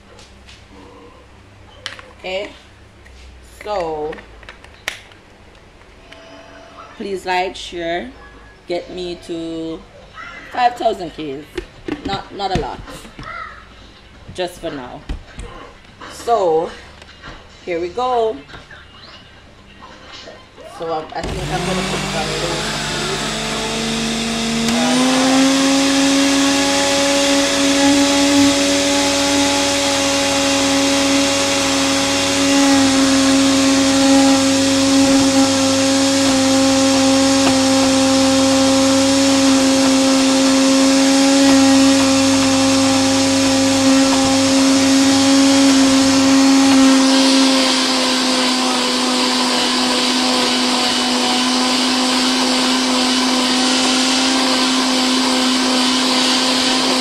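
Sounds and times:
blender motor running: 0:21.2 - 0:57.0.

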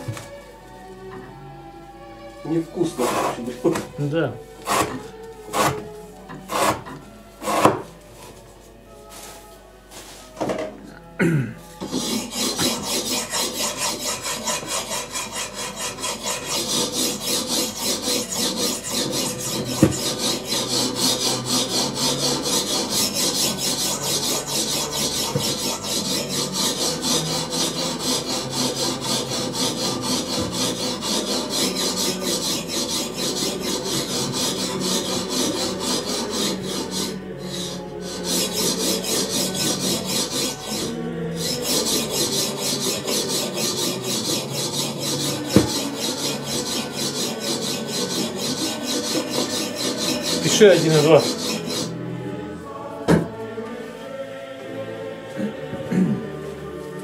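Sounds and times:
knife sawing through rope: 0:04.7 - 0:05.8, 0:11.8 - 0:52.0.

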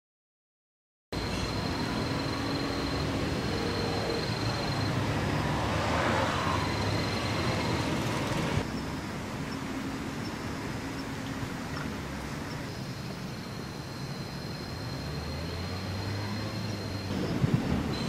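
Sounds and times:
road traffic noise: 0:01.1 - 0:18.0
vehicle passing: 0:01.2 - 0:08.6, 0:14.6 - 0:18.0.

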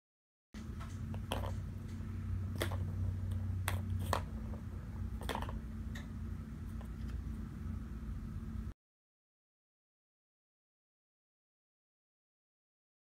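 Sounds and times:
steady low hum: 0:00.6 - 0:08.8.

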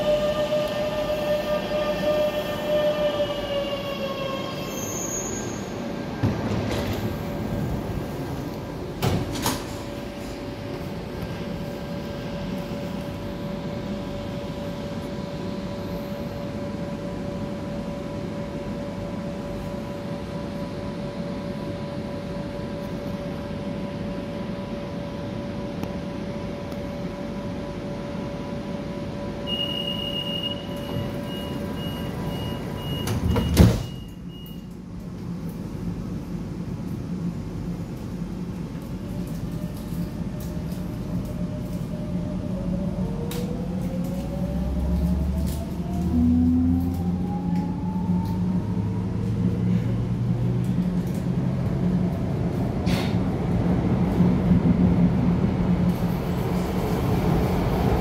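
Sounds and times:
train electrical hum: 0:00.0 - 0:58.0
high warning beeps: 0:29.5 - 0:34.7.

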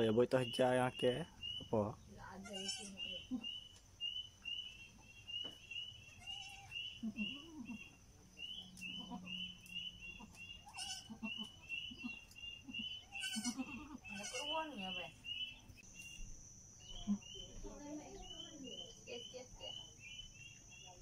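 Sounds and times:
goat bleating softly: 0:02.4 - 0:03.5, 0:06.1 - 0:07.9, 0:10.6 - 0:14.8.

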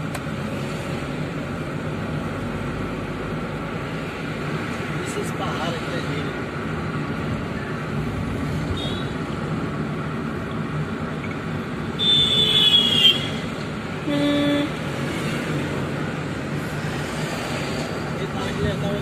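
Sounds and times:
car road and engine noise: 0:00.0 - 0:19.0
vehicle horn honk: 0:12.0 - 0:13.4, 0:14.0 - 0:14.7.

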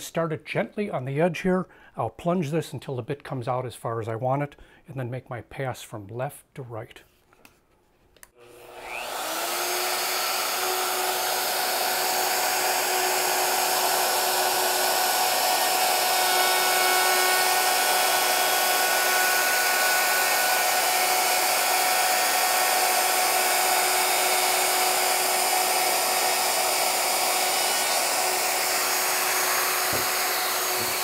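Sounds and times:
router whining: 0:08.4 - 0:31.0.

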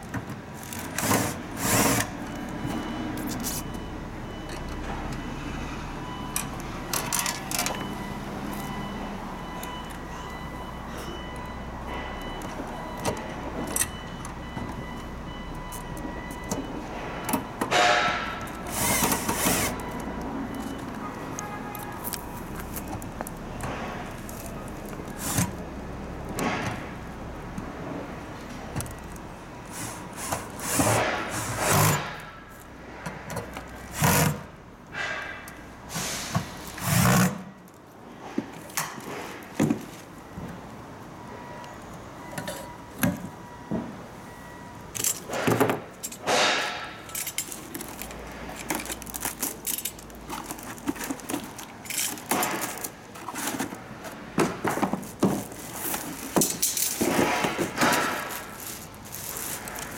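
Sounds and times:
cardboard and plastic rustling: 0:20.6 - 0:25.6, 0:47.1 - 0:59.9.

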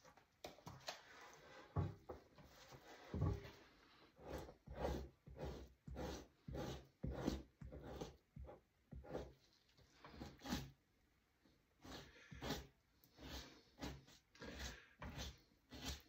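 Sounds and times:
knife scraping hide: 0:02.5 - 0:10.8, 0:11.8 - 0:16.0.

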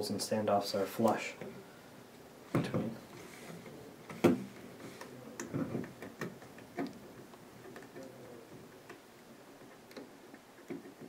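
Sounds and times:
fingers clicking on circuit boards: 0:05.0 - 0:11.0.

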